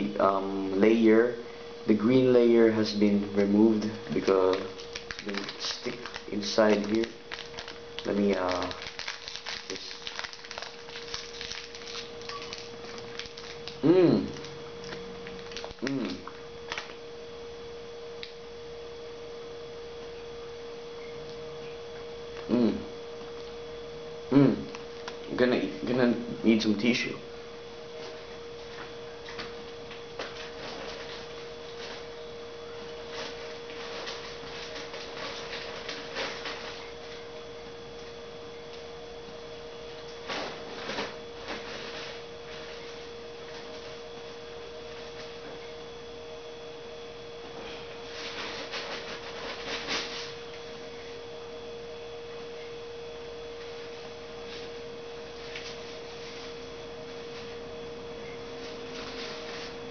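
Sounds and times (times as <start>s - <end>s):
steady hum: 0.0s - 59.9s
faint clicks and rustles: 33.1s - 37.2s.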